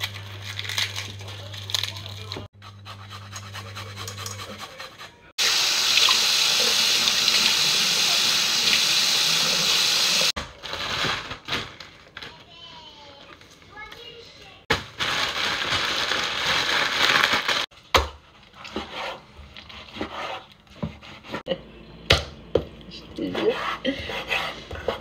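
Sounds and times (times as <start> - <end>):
garlic peeling crackles: 0.0 - 2.5
plastic bag rustling: 10.4 - 13.0, 14.8 - 17.7.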